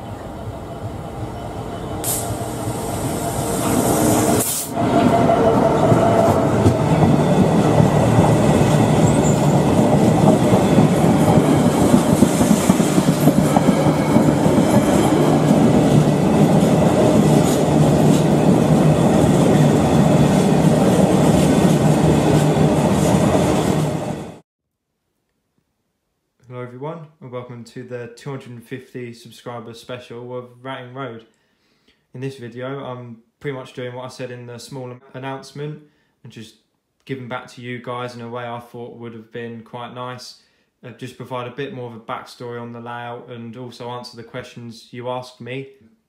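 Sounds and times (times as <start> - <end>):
train engine drone: 0.0 - 24.4.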